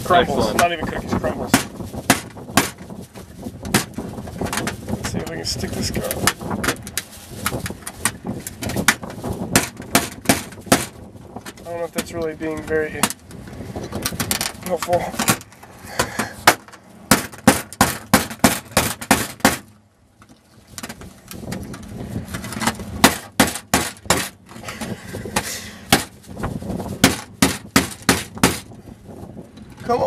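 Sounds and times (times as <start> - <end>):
hammer striking oyster shell: 1.5 - 2.8, 23.0 - 24.3, 27.0 - 28.6.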